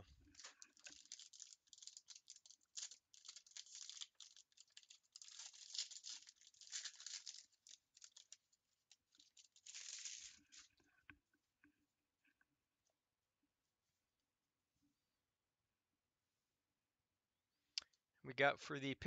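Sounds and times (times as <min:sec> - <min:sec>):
plastic wrapping tearing and crinkling: 0:00.0 - 0:10.8.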